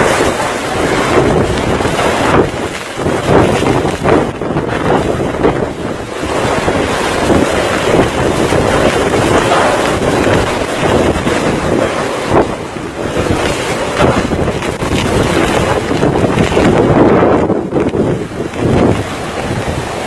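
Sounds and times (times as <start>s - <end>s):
strong wind buffeting microphone: 0.0s - 20.0s.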